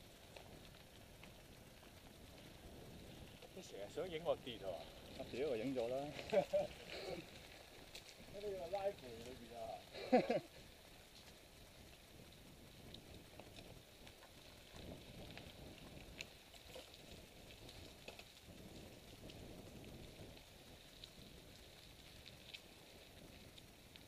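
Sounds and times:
bike tyres crunching on dirt: 0.0s - 24.0s
light clicks and ticks: 0.0s - 24.0s.

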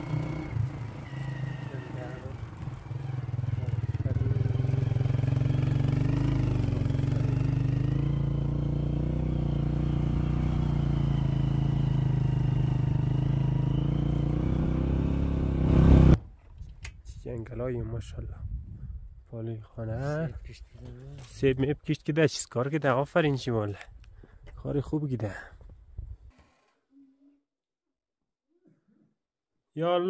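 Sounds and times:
motorcycle engine running: 0.0s - 16.2s.

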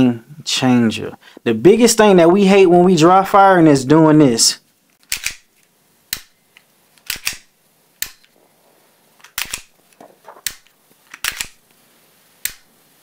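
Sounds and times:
pistol mechanical clicks: 5.0s - 8.4s, 9.2s - 11.8s, 12.4s - 12.7s.

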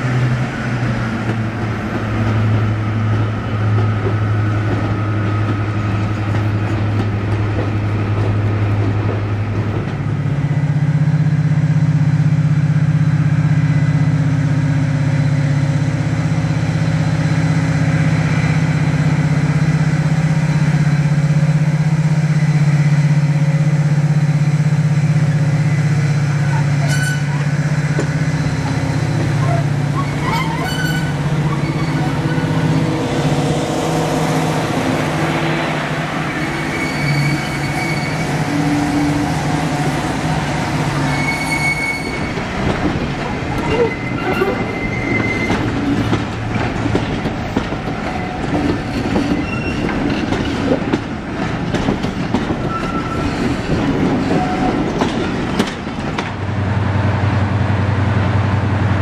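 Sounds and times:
diesel locomotive engine humming: 0.0s - 59.0s
train wheels clattering over rail joints: 0.8s - 10.5s, 42.1s - 56.5s
wheel squeals: 26.5s - 27.4s, 28.6s - 32.6s, 36.3s - 39.2s, 41.0s - 42.4s, 43.5s - 46.1s, 48.0s - 50.6s, 52.6s - 55.3s.

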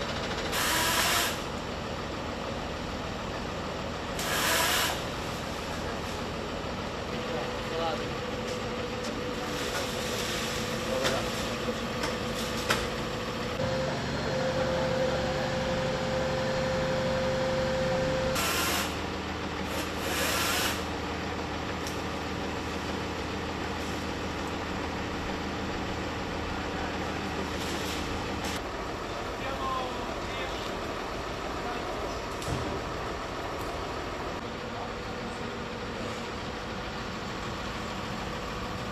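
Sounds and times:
fire truck engine running: 0.0s - 38.9s
hissing bursts: 0.5s - 1.5s, 4.2s - 5.2s.

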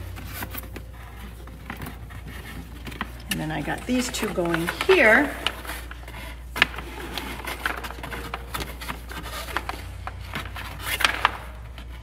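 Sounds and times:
hoses rubbing and scraping plastic: 0.0s - 12.0s.

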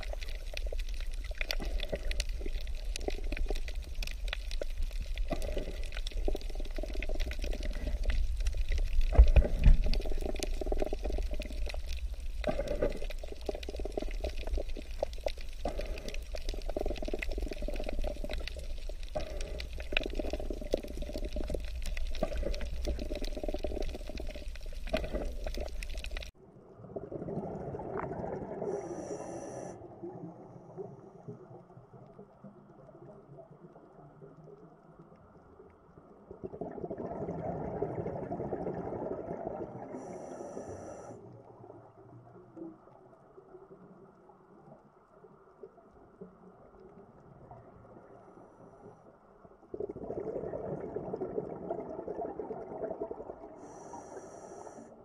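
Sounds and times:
crackle of small clicks: 0.0s - 26.4s, 30.8s - 36.7s, 39.8s - 50.5s
low underwater rumble: 0.0s - 40.7s.

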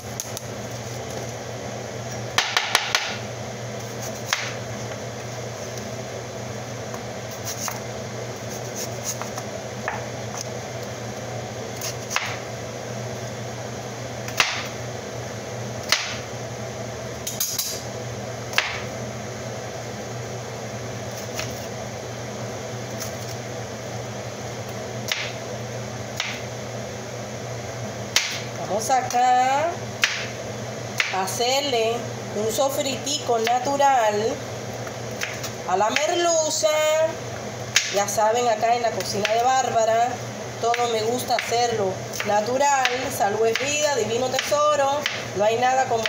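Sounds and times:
steady low hum: 0.0s - 46.0s
knife chopping on plastic board: 2.4s - 3.2s.

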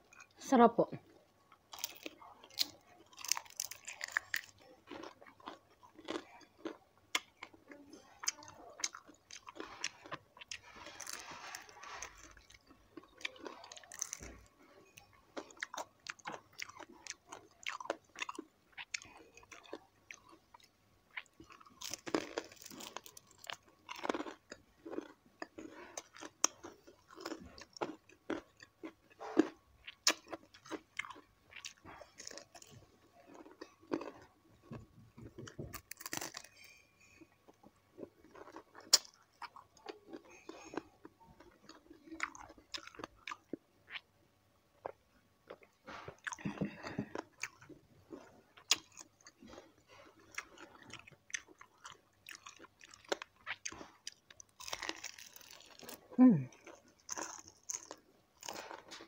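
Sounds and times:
crunchy chewing: 1.6s - 44.1s, 44.8s - 59.0s.

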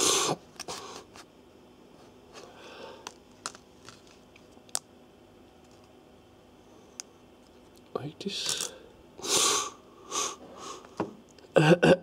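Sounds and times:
plastic card rustling: 3.3s - 4.8s.

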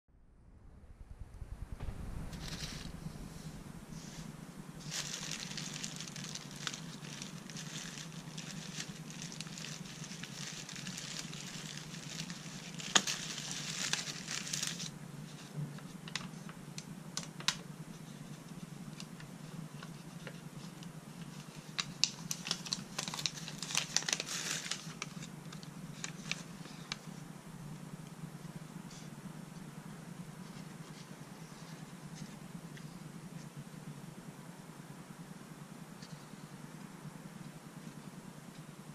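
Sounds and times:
steady low hum: 0.1s - 38.9s
plastic bag crinkling: 4.0s - 14.9s, 21.7s - 26.5s.

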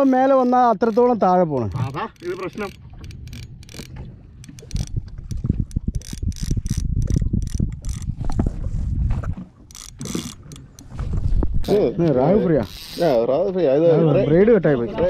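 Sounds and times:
fishing reel clicking and ratcheting: 0.4s - 8.2s, 9.7s - 10.9s, 12.6s - 13.2s
rod and glove handling rumble: 1.0s - 13.3s.

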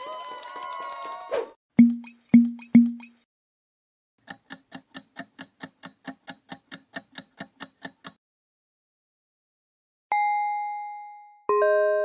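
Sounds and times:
pop sound effects: 1.8s - 3.2s.

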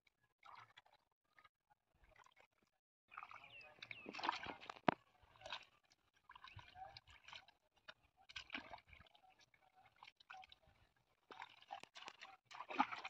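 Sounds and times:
hands squelching through wet mud: 3.1s - 5.7s, 11.3s - 13.0s.

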